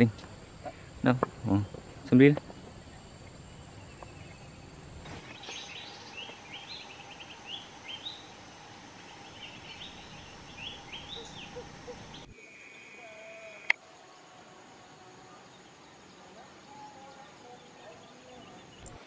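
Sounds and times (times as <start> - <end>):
small birds chirping: 0.0 - 12.3
faint rural background hum: 0.0 - 19.0.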